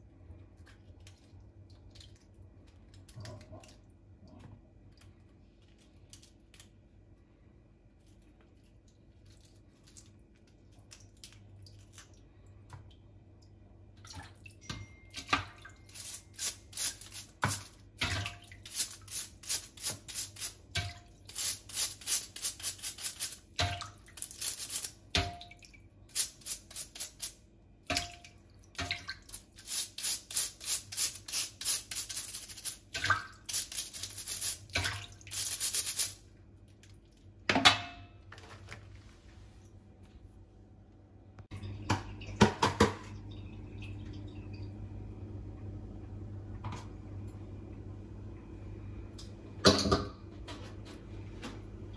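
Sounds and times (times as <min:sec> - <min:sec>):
brush scrubbing crab shell: 0:15.9 - 0:17.8, 0:18.6 - 0:25.0, 0:26.1 - 0:27.4, 0:29.3 - 0:36.2
water splash: 0:34.7 - 0:35.3.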